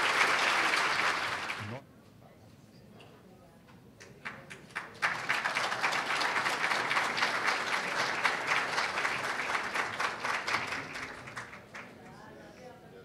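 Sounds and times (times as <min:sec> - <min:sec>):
audience applauding: 0:00.0 - 0:01.8, 0:04.5 - 0:12.0.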